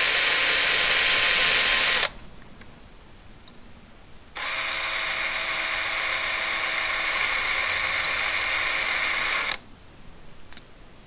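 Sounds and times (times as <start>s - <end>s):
cordless drill drilling metal: 0.0s - 2.2s, 4.4s - 9.6s.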